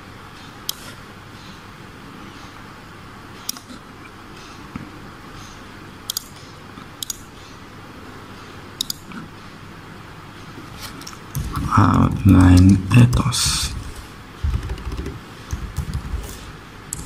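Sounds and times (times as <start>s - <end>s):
low room hum: 0.0s - 17.0s
computer mouse clicking: 6.1s - 6.3s, 7.0s - 7.2s, 8.8s - 9.1s, 14.4s - 17.0s.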